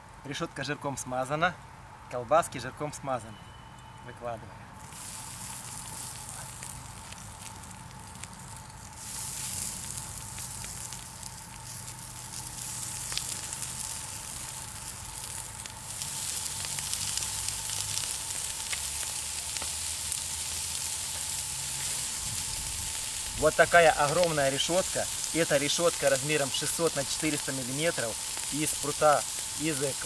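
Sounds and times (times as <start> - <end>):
crackles: 4.8 - 30.0
sausages sizzling on grill: 4.8 - 30.0.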